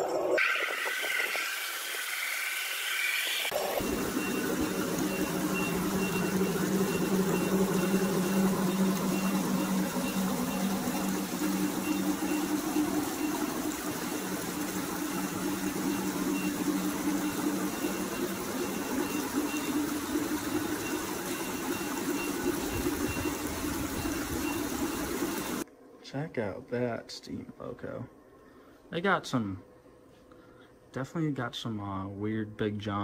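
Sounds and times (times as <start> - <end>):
model train motor hum: 0.4 - 25.6.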